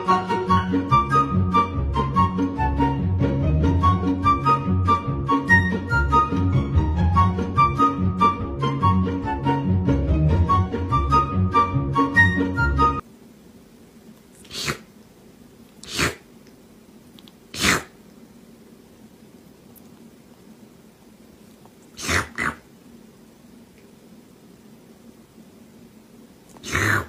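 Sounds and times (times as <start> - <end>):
background music: 0.0 - 13.0
kitten sneezing: 14.4 - 14.9, 15.8 - 16.3, 17.5 - 18.0, 21.9 - 22.6, 26.6 - 27.0.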